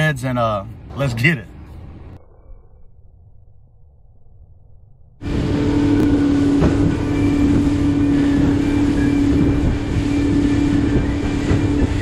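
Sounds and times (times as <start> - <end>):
boat engine droning: 5.2 - 12.0
water against hull: 5.2 - 12.0.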